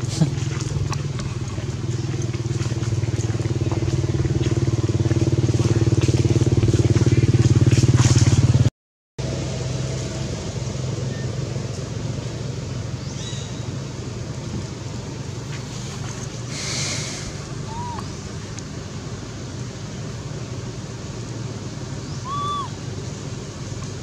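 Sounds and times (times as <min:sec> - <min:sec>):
outdoor low rumble with hiss: 0:00.0 - 0:08.5, 0:09.2 - 0:24.0.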